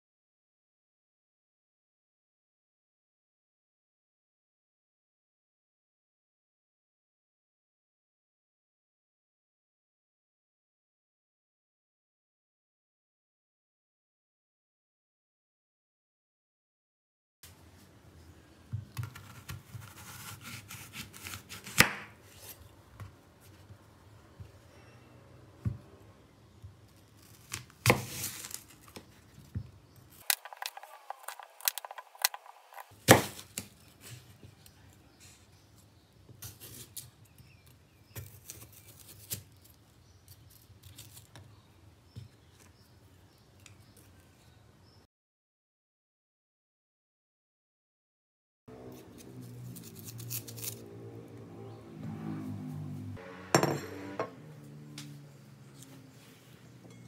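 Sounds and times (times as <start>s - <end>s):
knife cutting on wooden board: 18.9s - 22.6s
knife crunching through apple: 19.0s - 22.7s, 27.1s - 29.0s, 30.2s - 33.8s, 36.4s - 41.4s, 48.8s - 50.9s.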